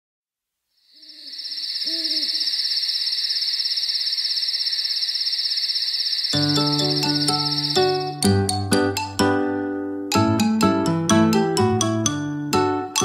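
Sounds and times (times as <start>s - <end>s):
crickets chirring: 0.7s - 8.2s
owl hooting: 0.8s - 8.0s.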